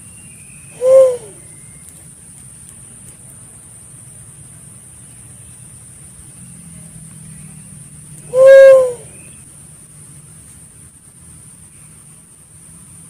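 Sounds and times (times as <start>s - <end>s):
faint high hiss: 0.0s - 13.0s
dove hooting: 0.8s - 1.5s, 8.3s - 9.2s.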